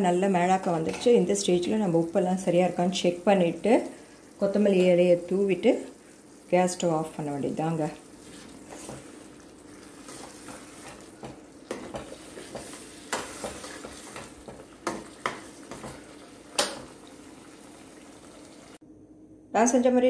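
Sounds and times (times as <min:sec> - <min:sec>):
low simmer: 0:00.1 - 0:18.8
ladle stirring thick curry: 0:08.0 - 0:17.4.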